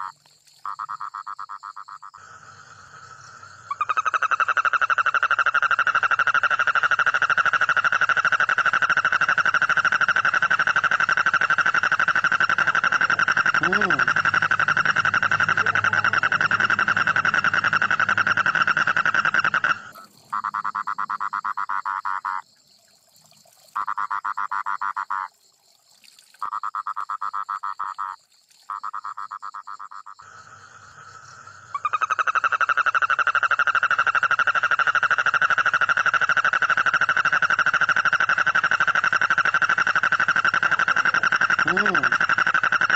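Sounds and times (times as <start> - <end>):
toad trilling: 0.0 - 2.2, 3.4 - 22.6, 23.8 - 25.3, 26.4 - 42.9.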